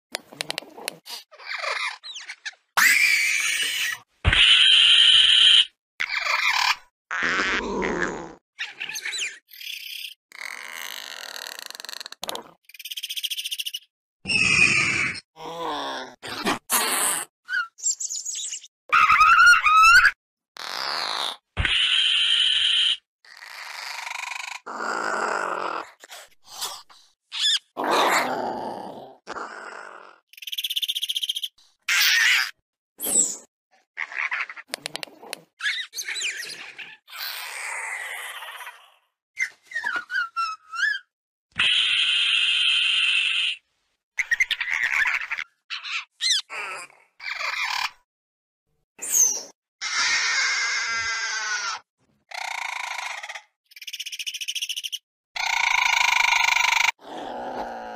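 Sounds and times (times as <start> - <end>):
creature grunts and chirps: 6.0 - 12.6, 14.3 - 17.8, 18.9 - 30.6, 31.9 - 39.1, 44.2 - 48.0, 49.0 - 54.2, 55.4 - 57.9.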